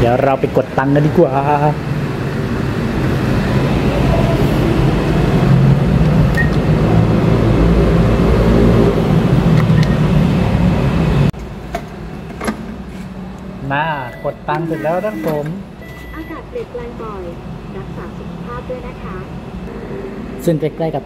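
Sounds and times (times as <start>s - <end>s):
short electronic beeps: 14.0s - 16.4s.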